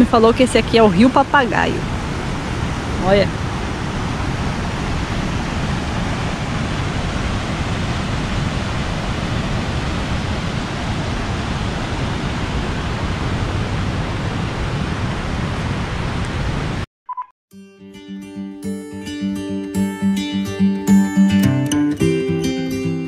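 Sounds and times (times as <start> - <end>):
river water rushing: 1.0 - 15.9.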